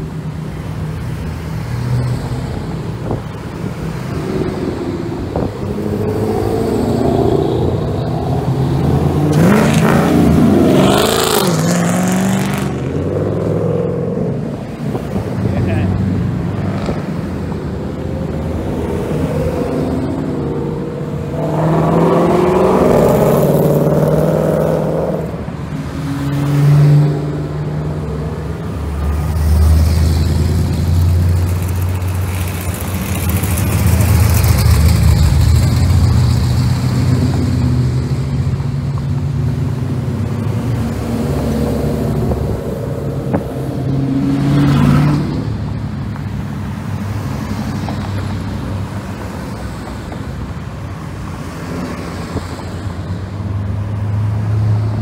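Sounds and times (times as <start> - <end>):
cars driving by rumbling: 0.0 - 55.0
car engine revving: 3.4 - 45.9.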